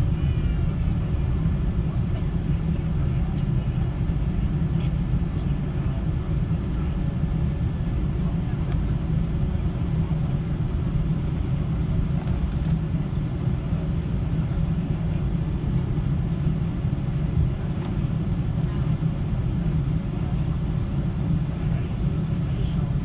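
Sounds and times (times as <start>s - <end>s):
airliner cabin engine rumble: 0.0s - 23.0s.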